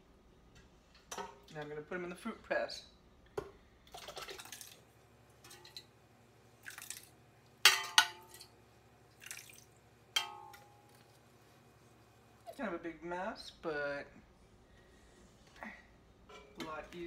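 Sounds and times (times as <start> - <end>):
wet pulp sloshing and splatting: 9.2 - 9.7
clinks against metal pot: 10.2 - 10.7.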